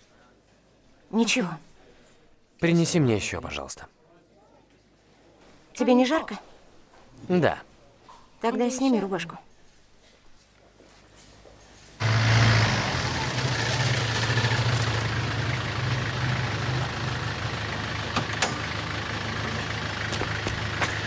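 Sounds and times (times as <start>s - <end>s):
car engine idling: 12.0s - 21.0s.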